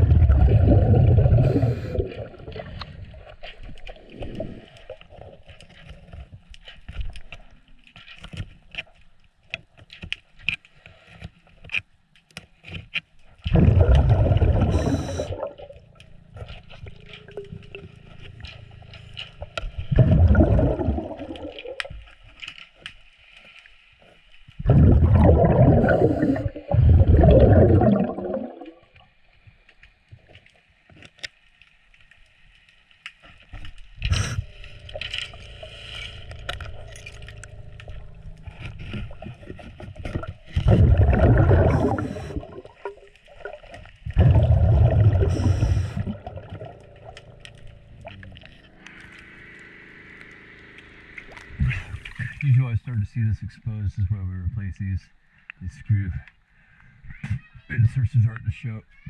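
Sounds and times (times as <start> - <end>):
regulator exhaling bubbles underwater: 0.0 - 5.4, 13.4 - 16.0, 19.8 - 22.1, 24.6 - 29.0, 37.7 - 49.8.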